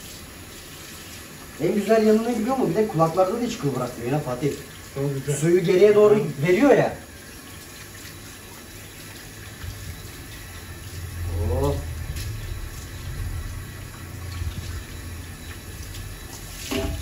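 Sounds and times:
tap water running into sink: 0.0 - 17.0
low hum: 9.6 - 16.3.

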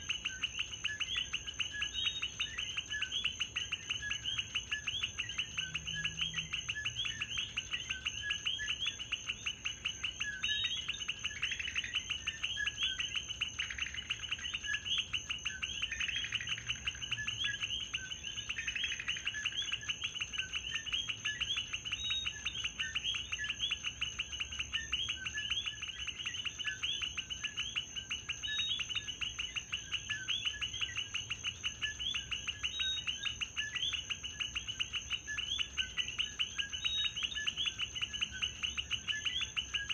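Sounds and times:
frogs chirping: 0.0 - 39.9.

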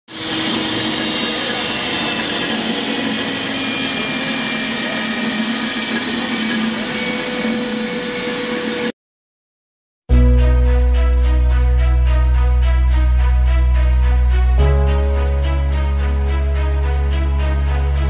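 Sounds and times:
pipe threading machine running: 0.1 - 8.9.

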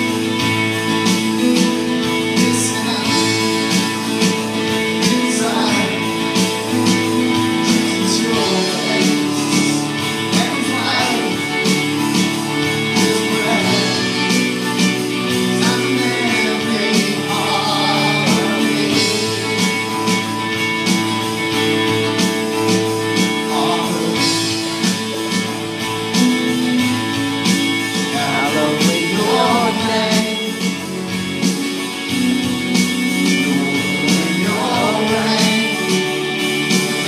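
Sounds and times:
drum kit steady beat: 0.0 - 37.0
strummed acoustic guitar: 0.0 - 37.0
man singing into a microphone: 2.4 - 3.8, 5.0 - 6.6, 7.5 - 11.6, 13.0 - 14.4, 15.4 - 19.5, 23.4 - 24.6, 28.1 - 30.8, 33.3 - 36.2.

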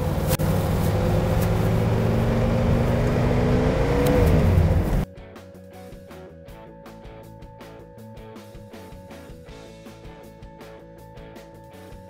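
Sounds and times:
car engine driving by: 0.0 - 5.1.

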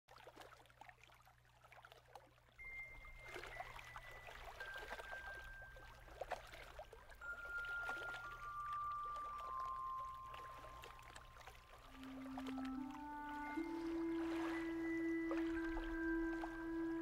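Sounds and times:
water lapping and trickling: 0.1 - 17.0
slow melody of high notes: 7.2 - 17.0.

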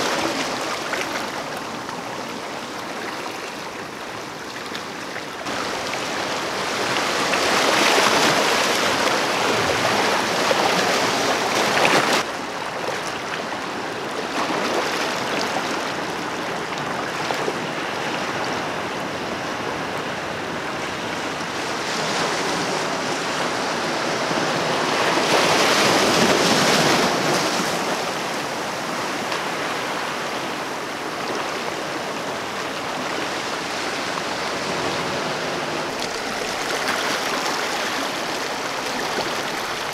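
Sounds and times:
waves washing over rocky shore: 0.0 - 39.9.

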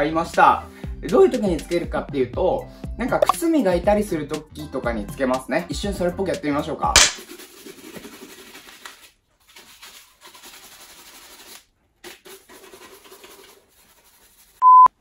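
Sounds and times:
brush scrubbing leather shoe: 7.2 - 14.6
loud steady beep: 14.6 - 14.9.

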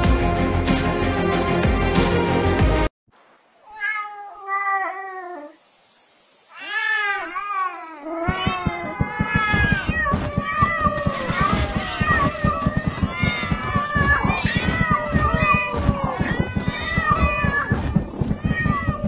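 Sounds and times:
background music: 0.0 - 2.9
cats meowing: 3.7 - 5.6, 6.5 - 19.0
low thumps: 8.5 - 19.0.

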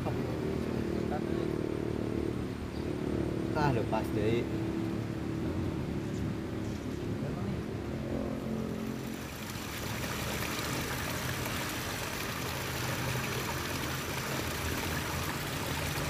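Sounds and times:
waterfall splashing over rocks: 8.8 - 16.0.

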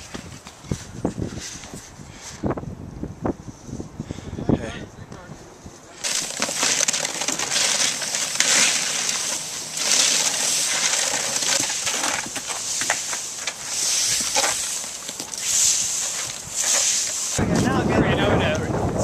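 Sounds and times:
rakes scraping through dry leaves: 6.0 - 17.4.

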